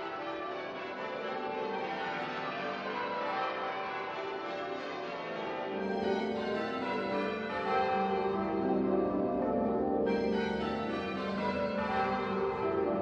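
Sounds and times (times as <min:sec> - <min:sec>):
church bells ringing: 0:00.0 - 0:13.0.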